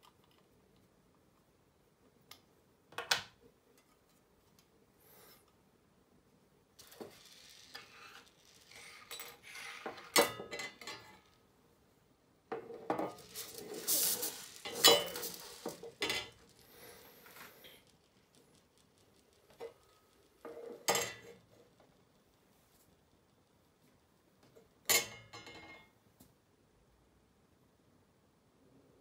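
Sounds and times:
metal screws clinking in a tin: 0:06.8 - 0:11.4, 0:12.9 - 0:21.6
thin metal sheets clattering on wood: 0:06.8 - 0:11.4, 0:12.5 - 0:18.3, 0:19.5 - 0:21.6.

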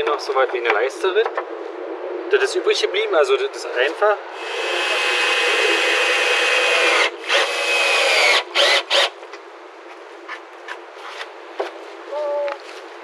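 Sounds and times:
power drill drilling into wood: 0:04.4 - 0:09.2.

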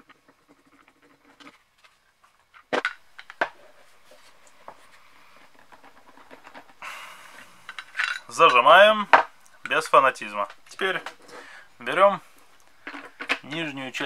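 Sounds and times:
light rubbing and tapping: 0:00.0 - 0:06.8.

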